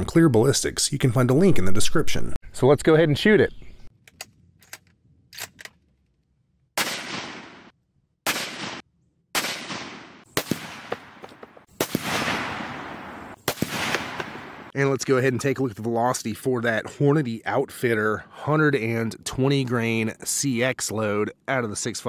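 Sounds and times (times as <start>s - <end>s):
rifle shots with echo: 6.8s - 14.7s.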